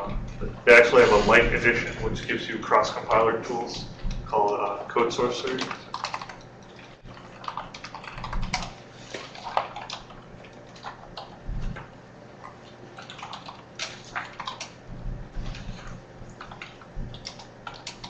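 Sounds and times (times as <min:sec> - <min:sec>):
dull low thumps: 0:03.8 - 0:04.3
keyboard typing and clicking: 0:04.0 - 0:11.9, 0:13.0 - 0:14.8, 0:15.4 - 0:18.0.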